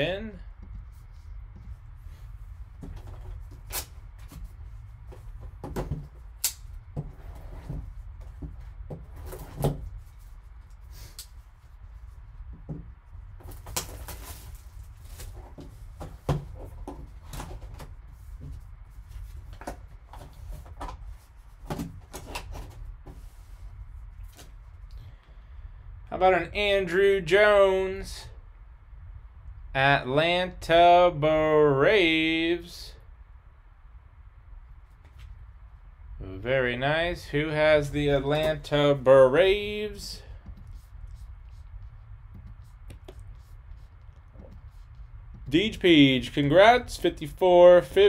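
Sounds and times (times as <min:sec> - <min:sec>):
low hum: 0:00.0 - 0:21.6, 0:32.9 - 0:48.0.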